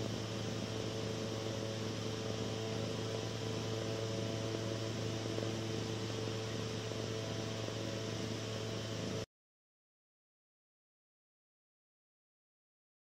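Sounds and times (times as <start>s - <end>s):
low electrical hum: 0.0s - 9.3s.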